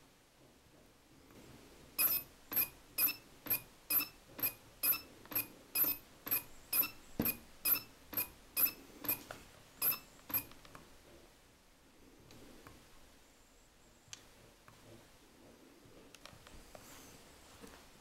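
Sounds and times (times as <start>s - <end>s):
lens focus motor squeaking: 2.0s - 10.5s.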